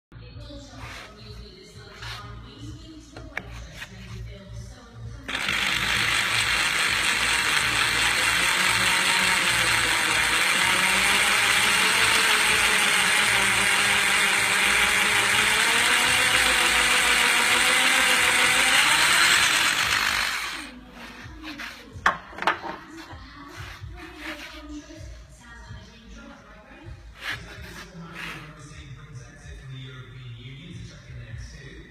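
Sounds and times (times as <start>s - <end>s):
power drill grinding through steel: 5.3s - 21.1s.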